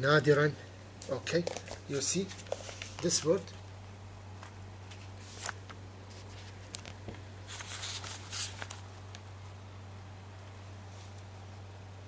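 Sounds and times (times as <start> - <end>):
steady low hum: 0.0 - 12.0
paper rustling and scraping: 1.4 - 3.3, 4.8 - 8.9.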